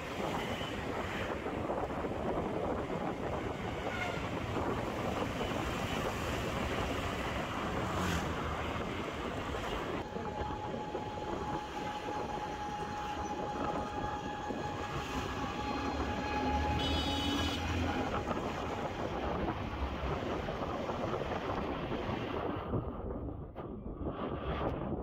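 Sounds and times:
wind and road noise: 0.0s - 25.0s
thin steady whine: 10.0s - 17.6s.

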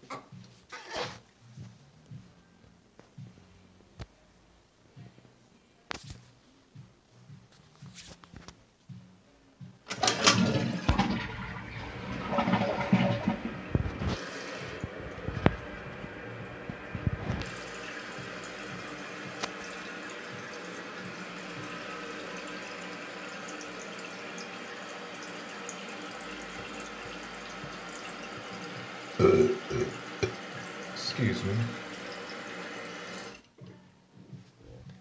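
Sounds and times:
toilet tank refilling: 9.9s - 33.5s.

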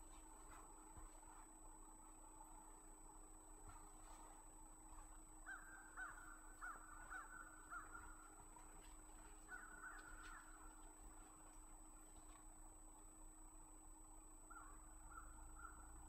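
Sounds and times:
crow cawing: 5.4s - 8.3s, 9.4s - 10.7s, 14.5s - 15.8s.

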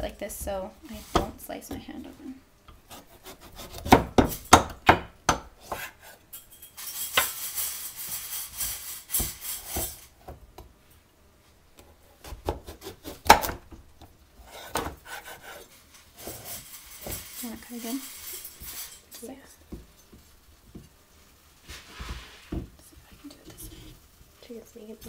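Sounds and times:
knife scraping through squash rind: 2.9s - 4.0s, 14.4s - 19.0s.

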